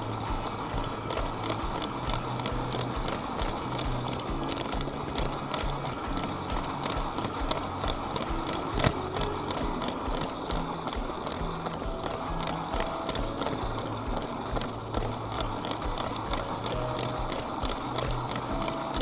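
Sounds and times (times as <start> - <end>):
electric motor running: 0.0 - 19.0
toy train wheels clicking on track: 0.0 - 19.0.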